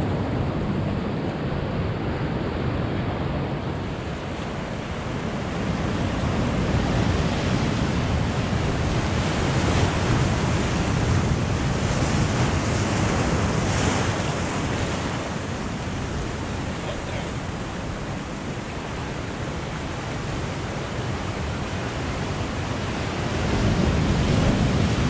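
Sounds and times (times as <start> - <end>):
surf washing over rocks: 0.0 - 25.0
wave crashing: 0.0 - 25.0.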